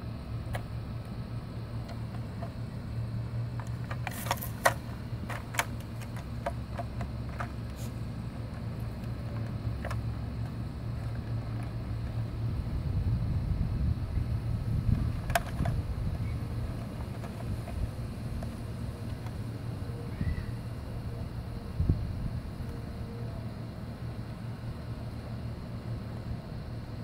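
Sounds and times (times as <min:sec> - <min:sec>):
low mechanical hum: 0:00.0 - 0:27.0
cat pawing plastic toy: 0:03.5 - 0:12.2, 0:14.9 - 0:19.4.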